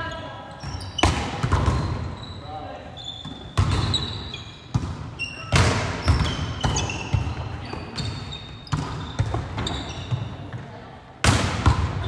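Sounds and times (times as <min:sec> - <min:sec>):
shoes squeaking on hardwood floor: 0:00.0 - 0:10.6
volleyball slaps echoing: 0:00.6 - 0:02.1, 0:03.3 - 0:04.0, 0:04.7 - 0:12.0.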